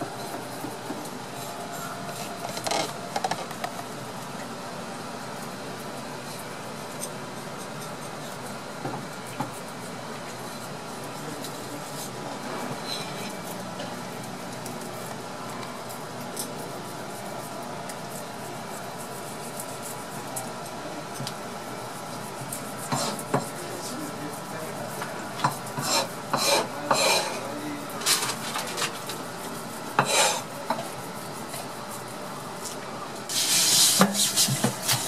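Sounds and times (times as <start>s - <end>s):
knife scraping fish scales: 29.3s - 30.5s.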